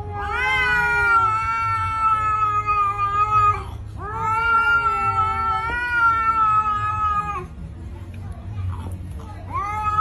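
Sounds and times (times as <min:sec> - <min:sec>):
cat yowling: 0:00.0 - 0:07.5, 0:09.5 - 0:10.0.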